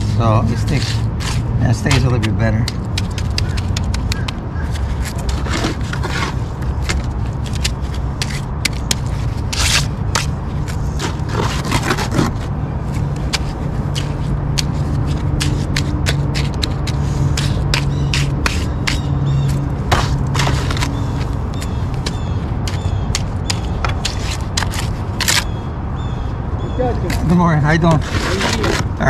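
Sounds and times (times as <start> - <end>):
trowel scraping wet concrete: 0.0 - 25.5, 27.1 - 29.0.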